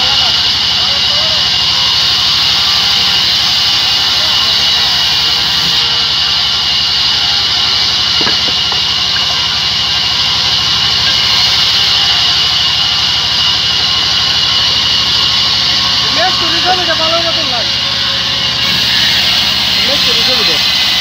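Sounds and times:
saw motor humming: 0.0s - 21.0s
band saw blade hissing through wood: 1.9s - 9.7s, 18.6s - 21.0s.

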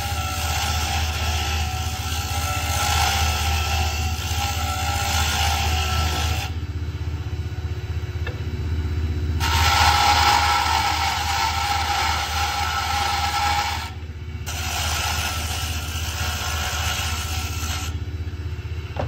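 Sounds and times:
turning tool scraping wood: 0.0s - 6.6s, 9.4s - 18.0s
lathe motor humming: 0.0s - 19.0s.

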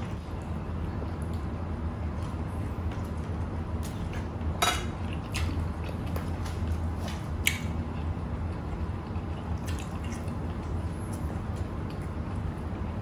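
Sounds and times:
steady low hum: 0.0s - 13.0s
wet mouth eating sounds: 7.4s - 12.5s.

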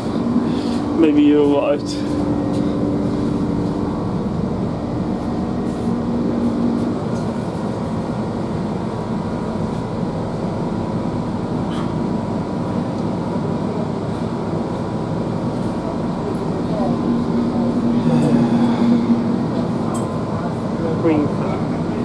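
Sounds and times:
train wheels on rails: 0.0s - 10.0s
low engine hum: 0.0s - 22.0s
train diesel engine rumble: 0.0s - 22.0s.

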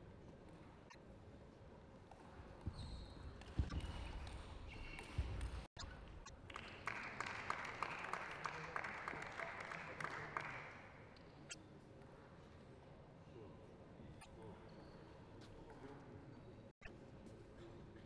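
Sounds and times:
steady hall noise: 3.4s - 14.6s.

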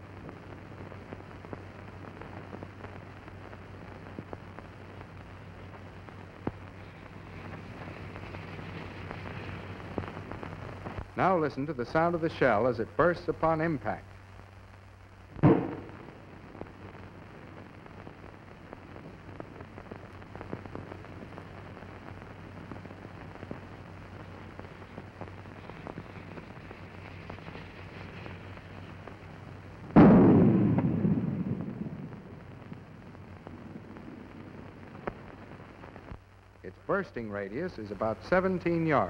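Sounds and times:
old film soundtrack hiss: 0.0s - 39.0s
mortar shell blast: 15.4s - 16.2s.

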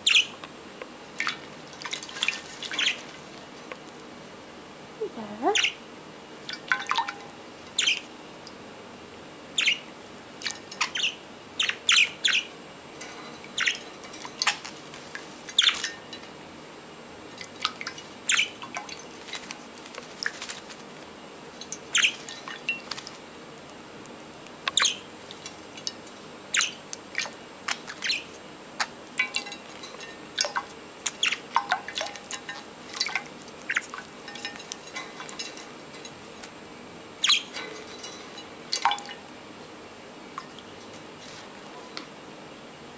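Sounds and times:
budgerigars chirping: 0.0s - 0.3s, 2.7s - 3.1s, 5.5s - 5.8s, 7.8s - 8.0s, 9.6s - 9.9s, 10.8s - 12.5s, 13.6s - 13.8s, 15.6s - 15.8s, 18.3s - 18.6s, 21.9s - 22.2s, 24.7s - 25.1s, 26.5s - 26.8s, 27.7s - 28.9s, 33.7s - 33.9s, 37.2s - 37.5s.

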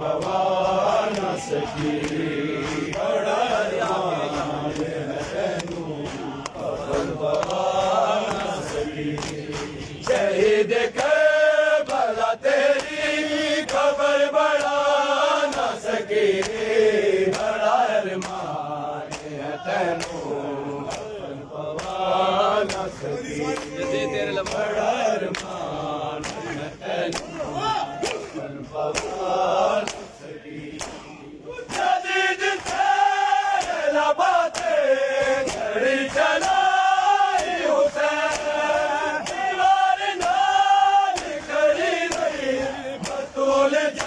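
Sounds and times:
hands slapping chests: 0.0s - 44.0s
men chanting together: 0.0s - 44.0s.

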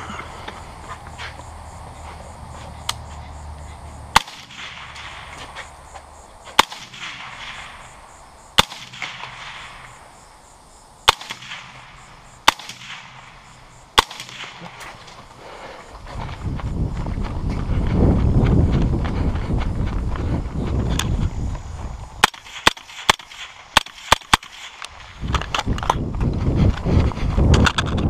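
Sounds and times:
rifle shots with echo: 4.1s - 5.5s, 6.6s - 10.1s, 11.0s - 15.3s, 22.2s - 25.1s.

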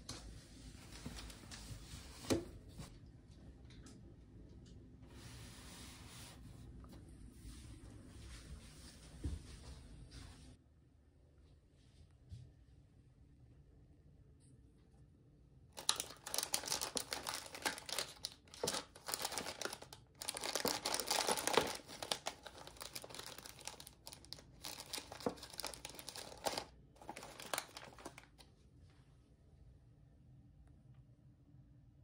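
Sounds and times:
plastic wrappers crinkling: 15.8s - 28.4s.

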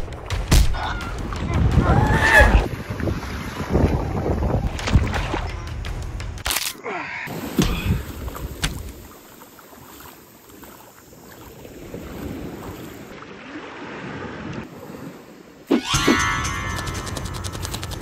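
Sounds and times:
wind buffeting microphone: 1.2s - 5.6s
sea water splashing: 7.3s - 15.8s.

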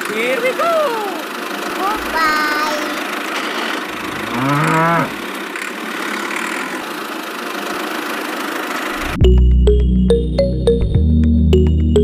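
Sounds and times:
steady engine running: 0.0s - 9.4s
cow mooing: 3.9s - 5.2s.

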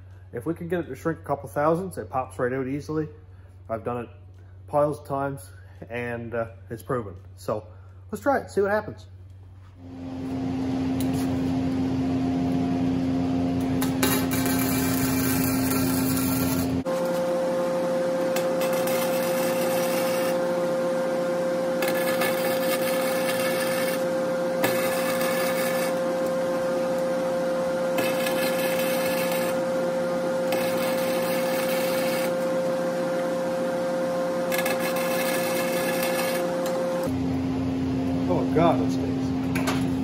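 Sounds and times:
steady hum: 9.1s - 40.0s
welder arc crackling: 13.6s - 20.6s, 21.7s - 33.6s, 34.2s - 37.2s.

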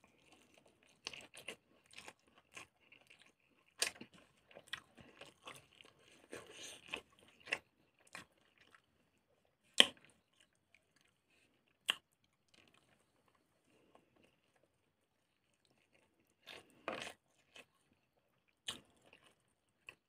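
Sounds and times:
wet chewing: 0.1s - 9.0s.

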